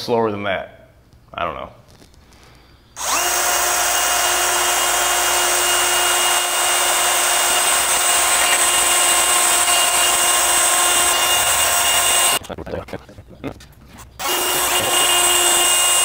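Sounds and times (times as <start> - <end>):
drill whining through steel: 3.0 - 12.4, 14.2 - 16.0.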